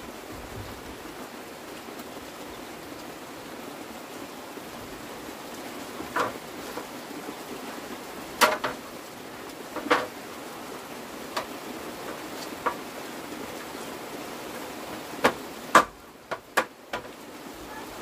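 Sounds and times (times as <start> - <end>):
steady hiss: 0.0 - 18.0
sharp knocks: 6.1 - 6.4, 8.4 - 8.8, 9.8 - 10.1, 15.2 - 17.1.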